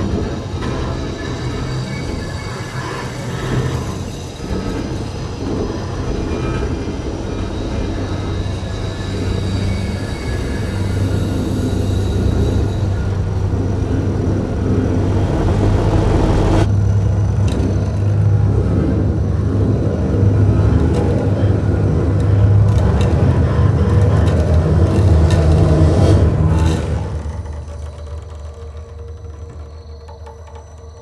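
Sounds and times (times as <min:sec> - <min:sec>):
bowed double bass drone: 0:11.7 - 0:27.1.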